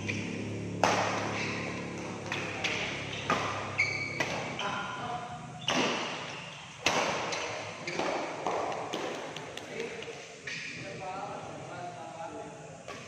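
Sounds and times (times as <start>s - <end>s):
racket hitting shuttlecock: 0.0s - 4.8s, 5.6s - 10.6s
sneakers squeaking on floor: 0.0s - 9.2s, 10.4s - 11.0s.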